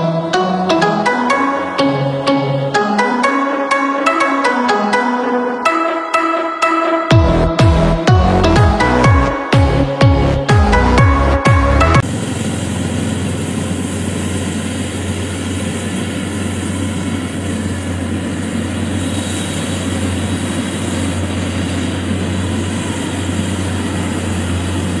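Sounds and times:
electronic music: 0:00.0 - 0:12.0
combine harvester engine and machinery: 0:07.4 - 0:25.0.

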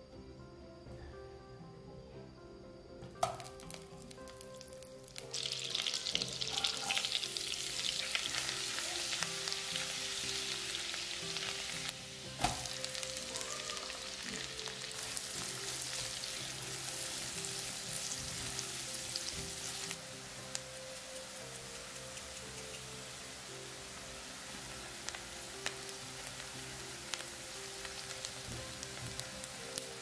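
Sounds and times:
food sizzling in butter and oil: 0:03.2 - 0:30.0.

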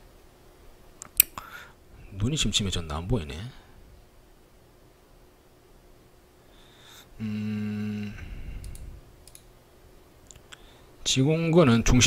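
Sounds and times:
man humming: 0:07.1 - 0:08.8
computer mouse clicks: 0:08.6 - 0:09.5.

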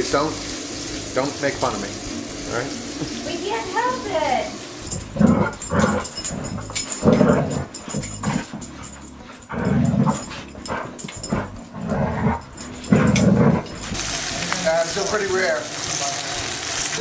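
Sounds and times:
dogs growling: 0:04.8 - 0:15.1.

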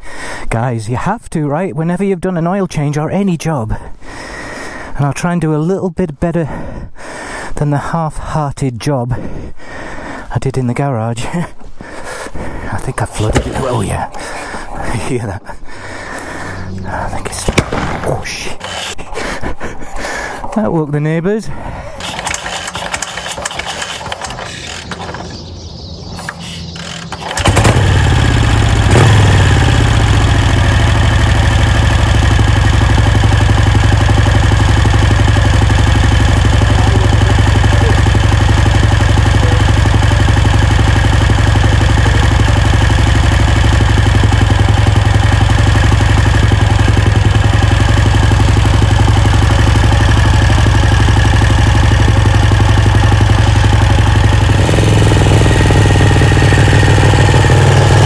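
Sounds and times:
motorcycle engine idling fast: 0:22.0 - 0:58.0.

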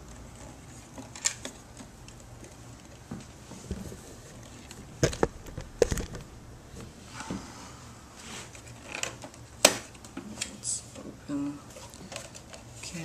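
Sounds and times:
camera handling clicks and knocks: 0:05.0 - 0:06.2.

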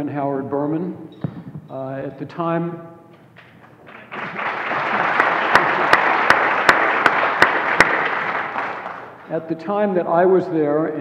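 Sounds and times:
sharp close hand claps: 0:03.4 - 0:09.3
audience applause: 0:03.8 - 0:09.3.

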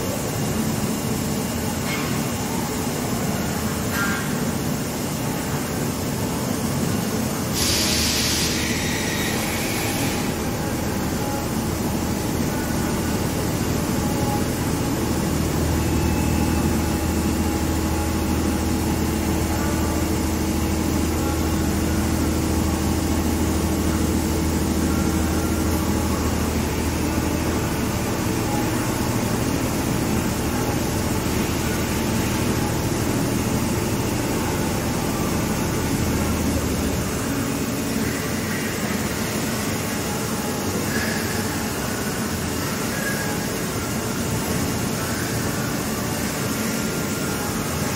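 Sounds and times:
coolant spraying: 0:07.5 - 0:39.4.

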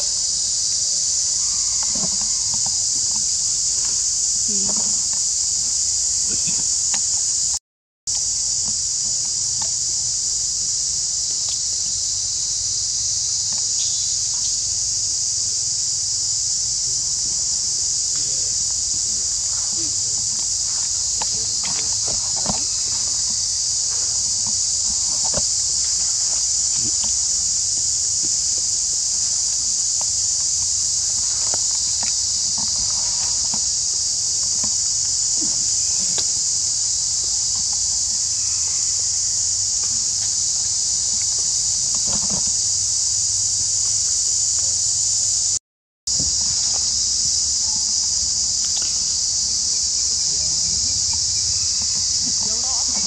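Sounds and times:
high-pitched insect chorus: 0:00.0 - 0:53.0
faint rustles: 0:00.1 - 0:07.5, 0:17.6 - 0:43.1
small ticks: 0:00.2 - 0:09.9, 0:11.2 - 0:12.6, 0:18.0 - 0:42.7.

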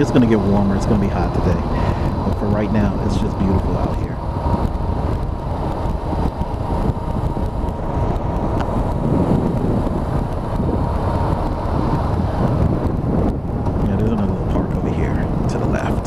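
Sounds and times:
motorcycle engine cruising: 0:00.0 - 0:16.0
wind rushing over microphone: 0:00.0 - 0:16.0.

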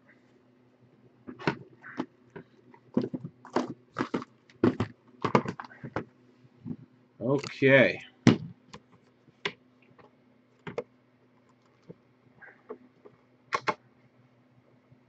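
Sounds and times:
cardboard boxes knocking and rustling: 0:02.9 - 0:06.1.

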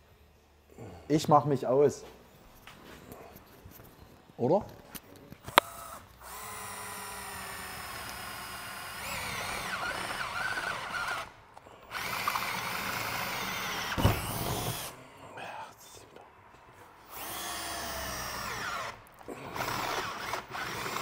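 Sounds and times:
cordless drill boring through metal: 0:05.5 - 0:14.9, 0:17.0 - 0:21.0.

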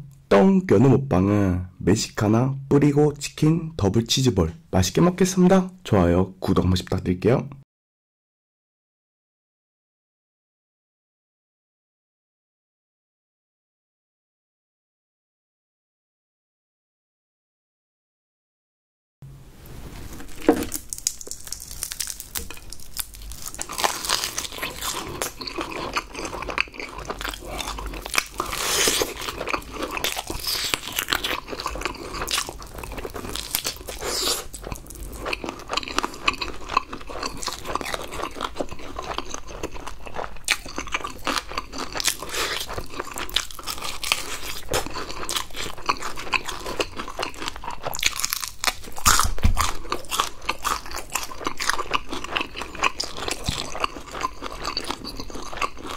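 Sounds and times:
crunching and chewing fried chicken: 0:20.2 - 0:55.9.

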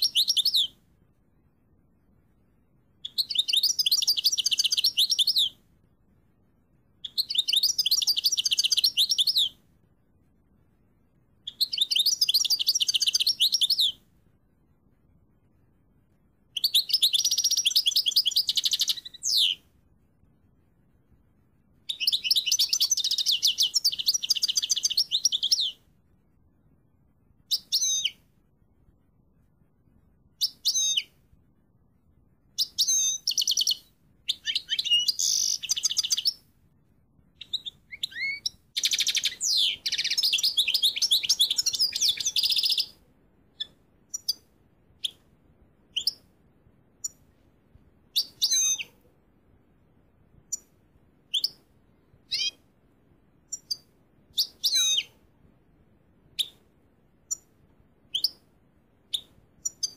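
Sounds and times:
finch singing trills: 0:00.0 - 0:00.8, 0:03.0 - 0:05.6, 0:07.0 - 0:09.6, 0:11.4 - 0:14.0, 0:16.6 - 0:19.6, 0:21.9 - 0:25.8, 0:27.5 - 0:28.2, 0:30.4 - 0:31.2, 0:32.6 - 0:36.4, 0:37.4 - 0:43.0, 0:45.9 - 0:46.3, 0:48.1 - 0:49.0, 0:51.3 - 0:51.6, 0:52.2 - 0:52.6, 0:53.5 - 0:55.2.

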